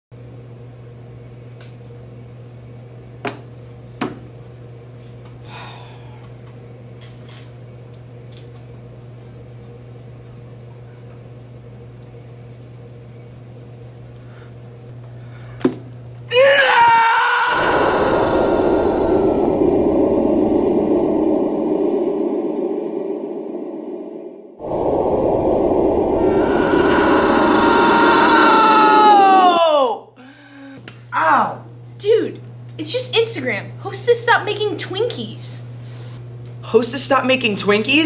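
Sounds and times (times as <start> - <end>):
low hum: 17.2 - 29.8
loud rushing noise: 17.6 - 29.5.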